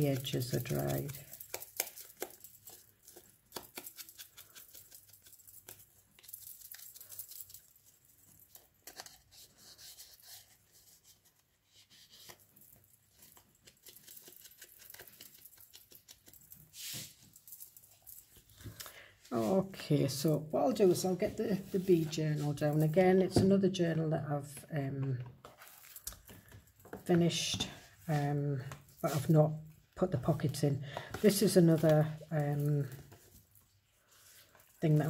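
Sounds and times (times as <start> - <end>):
paper rustling: 25.4 - 27.1.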